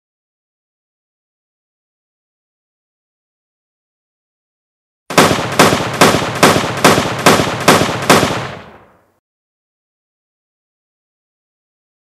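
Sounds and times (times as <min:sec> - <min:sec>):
rifle shots echoing: 0:05.1 - 0:09.0.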